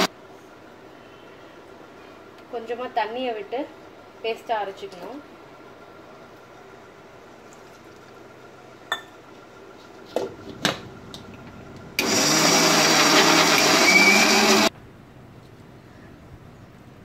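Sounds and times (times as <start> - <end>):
mixer grinder motor running: 10.4 - 14.7.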